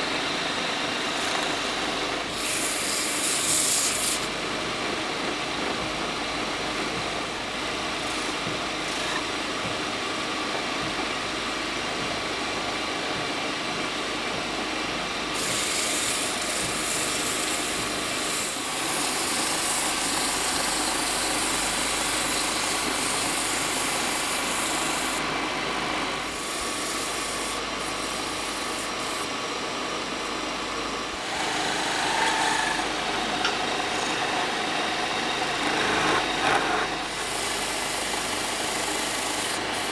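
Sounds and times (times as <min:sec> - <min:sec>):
wood lathe running: 0:00.0 - 0:05.0, 0:07.9 - 0:09.2, 0:15.4 - 0:29.4, 0:31.0 - 0:39.9
sanding hiss: 0:02.3 - 0:04.3, 0:15.4 - 0:25.2, 0:26.2 - 0:29.3, 0:37.1 - 0:39.9
chisel scraping turning wood: 0:15.4 - 0:25.2, 0:31.2 - 0:34.4, 0:35.4 - 0:39.9.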